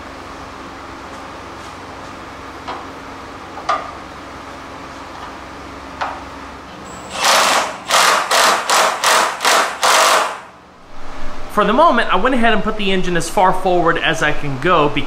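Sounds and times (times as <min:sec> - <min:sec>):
impact wrench hammering: 0:06.9 - 0:10.6.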